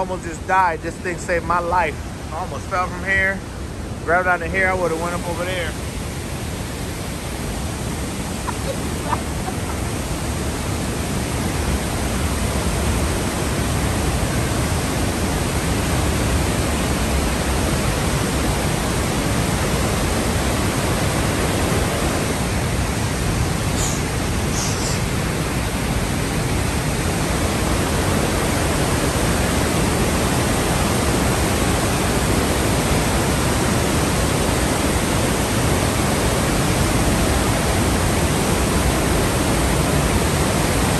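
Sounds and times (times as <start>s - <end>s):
water rushing over boulders: 0.0s - 40.9s.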